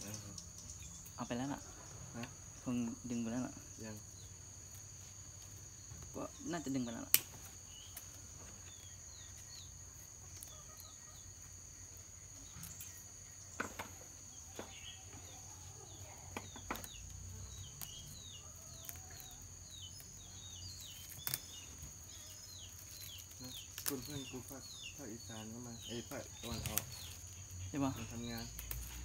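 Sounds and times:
insects trilling: 0:00.0 - 0:29.0
small birds chirping: 0:00.0 - 0:29.0.

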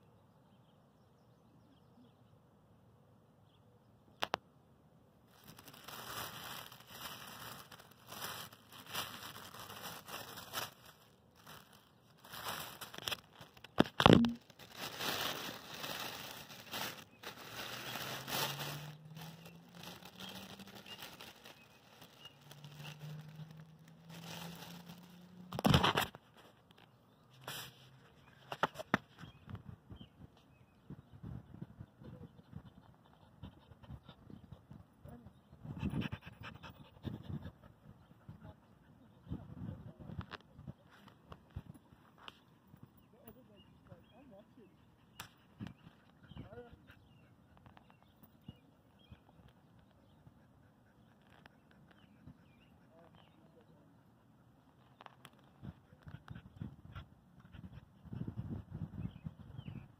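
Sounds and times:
plastic bag crinkling: 0:05.3 - 0:26.1.

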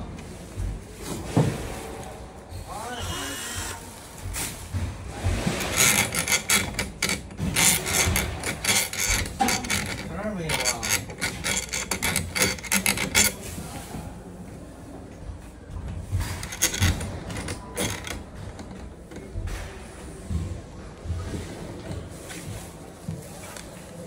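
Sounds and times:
metal door hardware scraping and clicking: 0:05.3 - 0:13.8, 0:16.1 - 0:19.6.

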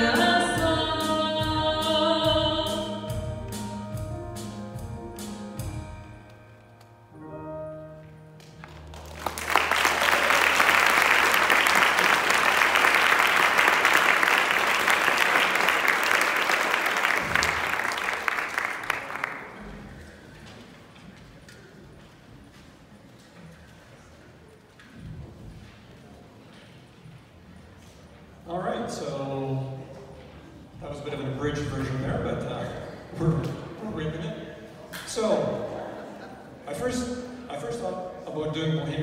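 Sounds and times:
held music notes: 0:00.0 - 0:10.0
audience applauding: 0:08.4 - 0:20.1.

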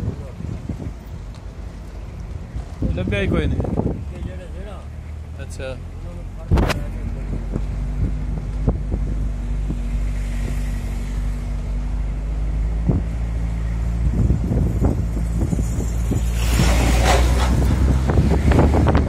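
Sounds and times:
vehicle engine running: 0:03.6 - 0:19.0
wind rushing past: 0:12.4 - 0:19.0.

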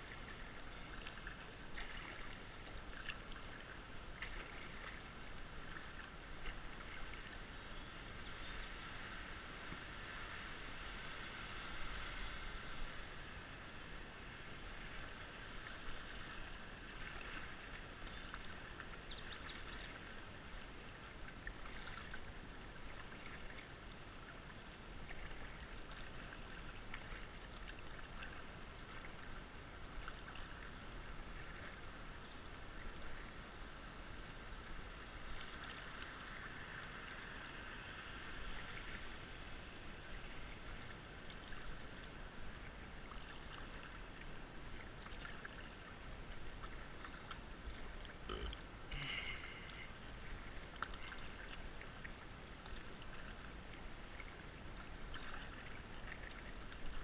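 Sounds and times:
water lapping against kayak hull: 0:00.0 - 0:07.7, 0:14.7 - 0:33.4, 0:39.9 - 0:57.0
creek water running: 0:00.0 - 0:57.0
paddle dips and splashes: 0:00.0 - 0:57.0.

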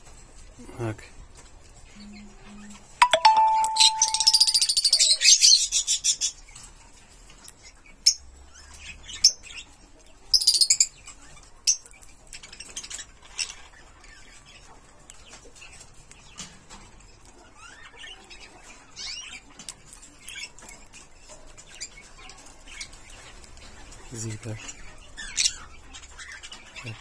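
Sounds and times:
parrot high-pitched chirping: 0:03.0 - 0:06.3, 0:10.3 - 0:10.9.

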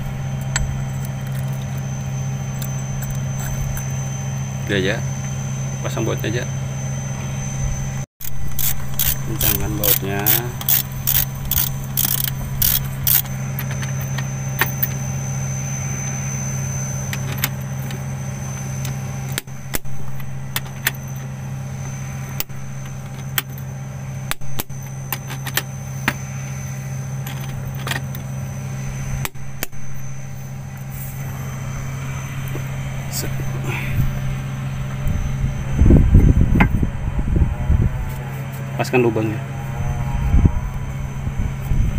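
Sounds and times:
engine idling hum: 0:00.0 - 0:41.9
ratchet wrench clicking: 0:08.2 - 0:14.9.

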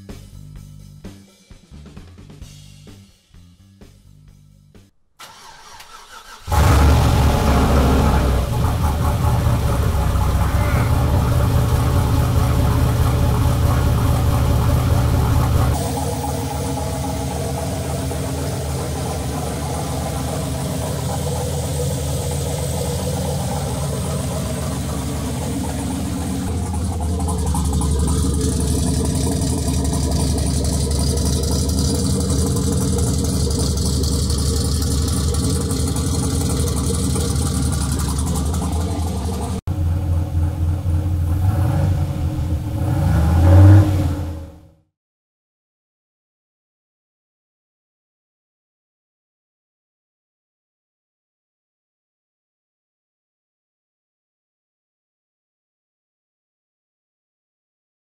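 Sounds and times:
car engine idling: 0:05.2 - 0:44.6
engine revving: 0:05.2 - 0:44.7.

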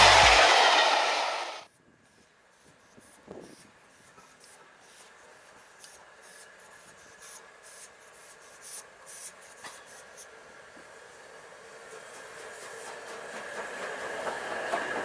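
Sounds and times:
steam locomotive hiss: 0:00.0 - 0:01.6, 0:07.2 - 0:15.0.

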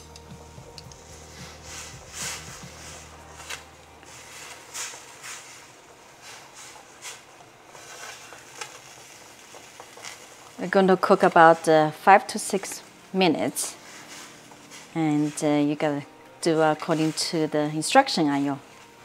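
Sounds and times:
chopsticks swishing in water: 0:01.1 - 0:08.6, 0:13.8 - 0:15.6.

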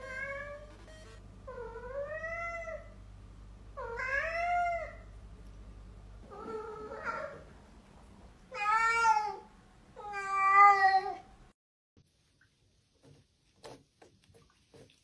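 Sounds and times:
cat meowing: 0:08.5 - 0:11.2.

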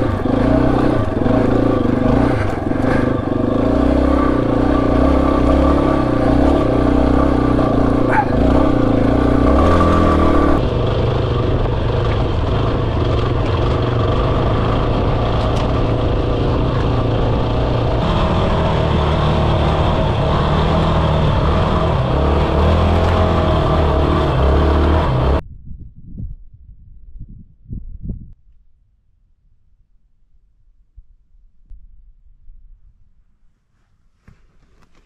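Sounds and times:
motorcycle engine under load: 0:00.0 - 0:25.4.

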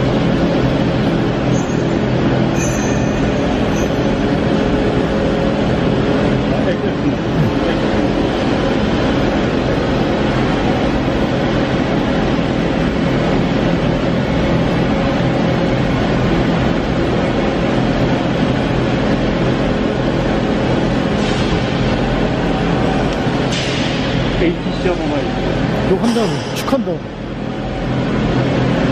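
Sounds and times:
shop machinery droning: 0:00.0 - 0:28.9.

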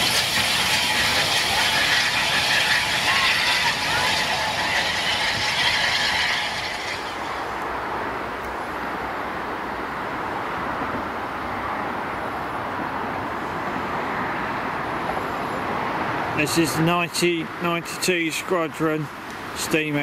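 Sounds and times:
steam locomotive hissing: 0:00.0 - 0:08.4
distant traffic rumble: 0:00.0 - 0:20.0.

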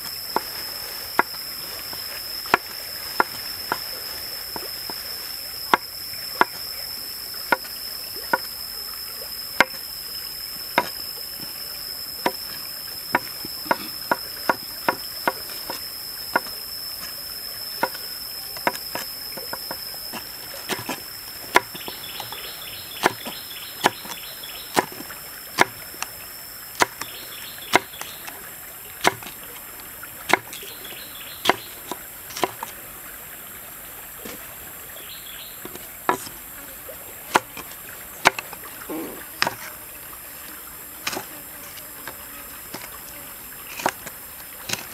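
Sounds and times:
knife chopping on wooden board: 0:02.5 - 0:03.9, 0:10.8 - 0:11.0, 0:13.1 - 0:16.5, 0:17.8 - 0:18.0, 0:18.6 - 0:22.4, 0:23.0 - 0:25.0, 0:25.6 - 0:25.8, 0:26.8 - 0:27.1, 0:27.7 - 0:28.1, 0:29.0 - 0:29.3, 0:30.3 - 0:30.6, 0:31.4 - 0:32.7, 0:35.6 - 0:36.4, 0:37.3 - 0:38.6, 0:39.4 - 0:39.7, 0:41.0 - 0:41.3, 0:43.7 - 0:44.0, 0:44.7 - 0:44.9.

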